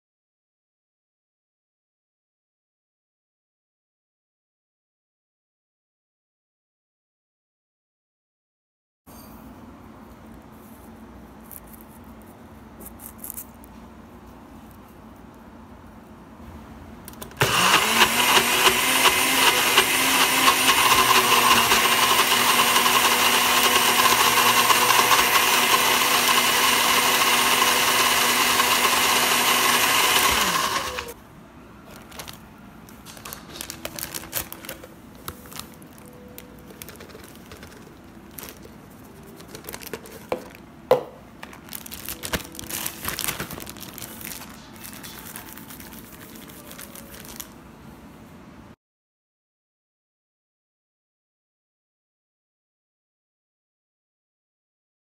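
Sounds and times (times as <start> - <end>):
blender motor running: 17.4 - 31.2
plastic bag rustling: 31.8 - 40.6, 41.4 - 47.6.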